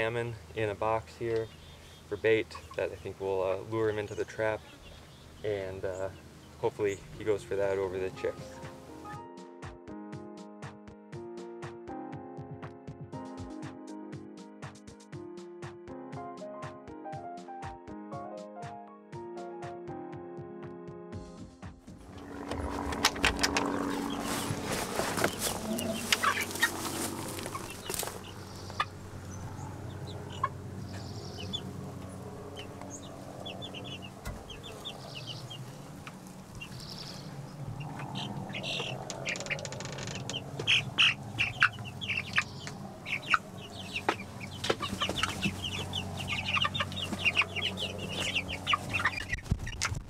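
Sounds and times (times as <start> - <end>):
chickens clucking: 2.1 - 8.8, 22.2 - 50.0.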